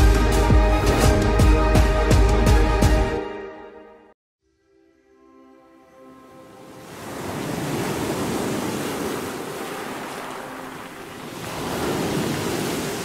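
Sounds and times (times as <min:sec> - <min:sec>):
waves breaking: 0:06.4 - 0:13.0.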